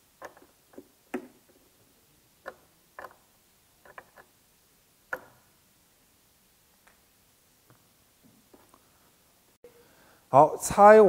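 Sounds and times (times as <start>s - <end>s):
small hard parts clicking: 0.2s - 1.2s, 2.4s - 4.3s.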